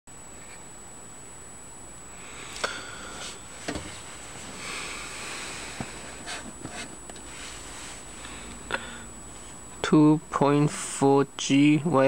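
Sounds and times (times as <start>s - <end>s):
soft rubbing: 3.1s - 4.7s, 5.6s - 8.2s.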